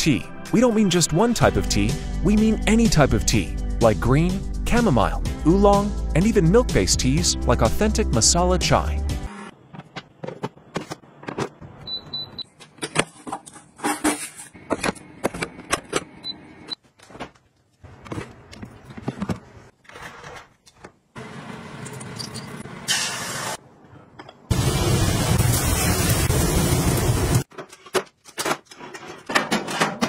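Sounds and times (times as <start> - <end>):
trays and containers clattering: 12.6 - 16.1, 27.5 - 30.0.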